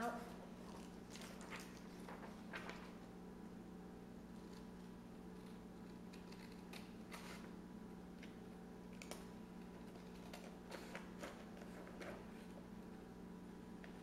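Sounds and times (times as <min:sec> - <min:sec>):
scissors snipping paper: 0:05.5 - 0:07.4.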